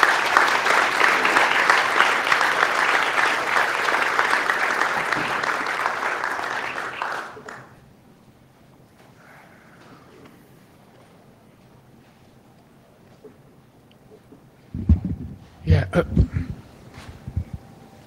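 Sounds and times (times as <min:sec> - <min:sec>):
audience applause: 0:00.0 - 0:07.8.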